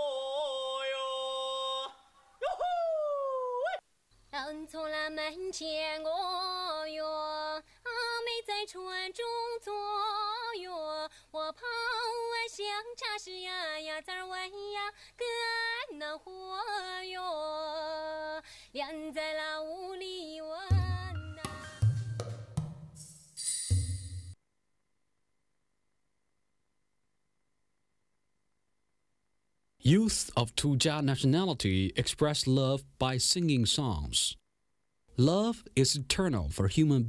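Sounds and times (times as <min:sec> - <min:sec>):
woman singing unaccompanied: 0:00.0 - 0:02.1, 0:04.3 - 0:21.8
drums and cymbals: 0:20.8 - 0:24.4.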